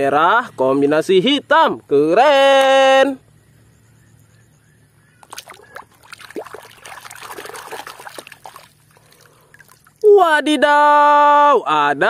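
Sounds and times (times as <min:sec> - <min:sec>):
hand scrubbing toys in water: 0:05.2 - 0:10.0
water splashing: 0:05.2 - 0:10.1.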